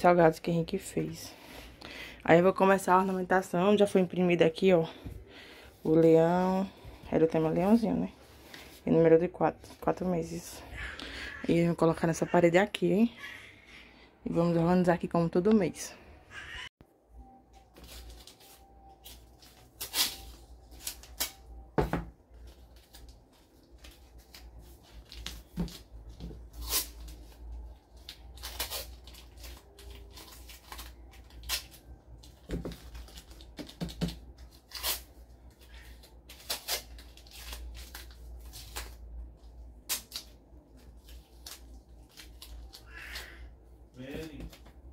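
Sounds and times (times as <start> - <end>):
masking tape ripping: 19.8 - 21.5, 26.5 - 31.9, 34.6 - 35.1, 35.8 - 39.0.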